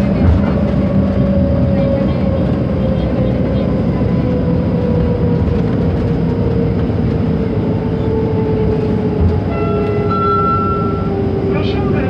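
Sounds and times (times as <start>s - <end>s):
train rumble with motor whine: 0.0s - 12.0s
high steady tone: 9.5s - 11.7s.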